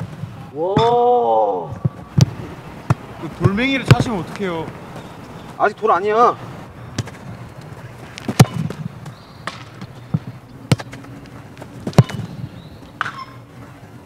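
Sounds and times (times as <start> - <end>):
football kicked thuds: 1.8 - 4.4, 6.9 - 7.3, 8.2 - 13.2.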